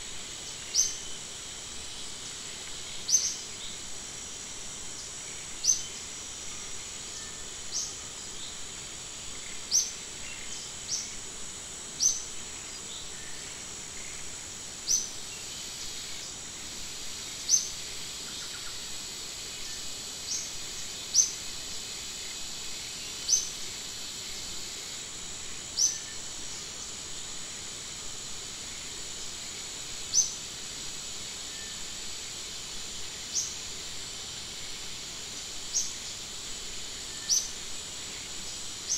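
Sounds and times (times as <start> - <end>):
high-pitched insect drone: 0.0 - 38.9.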